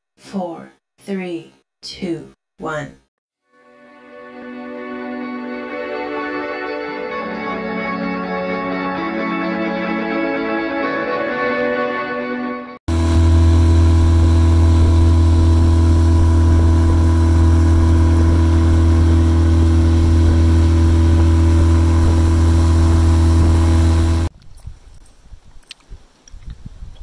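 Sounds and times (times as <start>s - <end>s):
outboard motor running: 12.9s - 24.3s.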